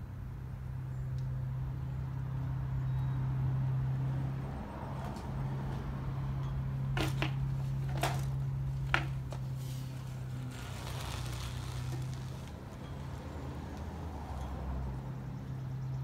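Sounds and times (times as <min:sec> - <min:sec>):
bike clicks and knocks on wood: 0:06.9 - 0:09.5
bike tyres hissing past: 0:09.5 - 0:12.8.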